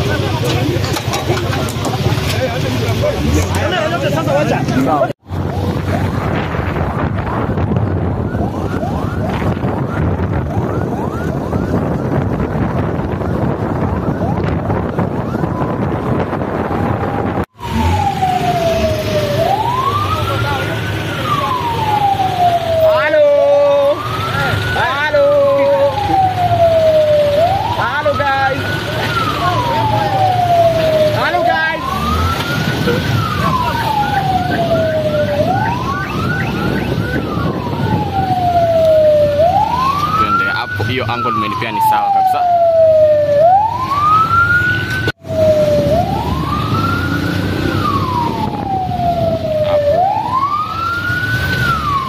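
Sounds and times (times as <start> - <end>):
police siren wailing: 0.0 - 52.0
street traffic: 0.0 - 52.0
wind buffeting microphone: 5.2 - 20.4, 31.8 - 52.0
short rising siren chirps: 16.6 - 22.8, 29.2 - 52.0.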